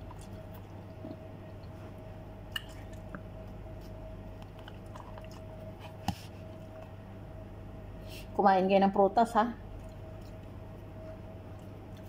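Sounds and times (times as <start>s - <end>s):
faint chewing: 0.0s - 7.0s, 9.7s - 12.0s
steady hum: 0.0s - 12.0s.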